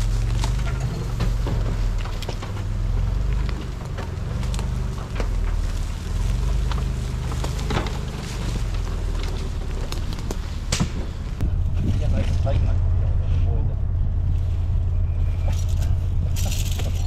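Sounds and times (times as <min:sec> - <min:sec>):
truck engine running low: 0:00.0 - 0:17.0
tyres crunching over dry leaves: 0:00.0 - 0:17.0
twigs snapping: 0:03.2 - 0:11.2.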